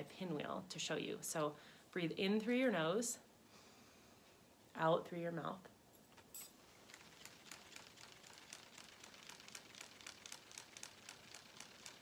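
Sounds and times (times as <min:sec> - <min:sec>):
pinwheel ticking: 0:06.8 - 0:12.0.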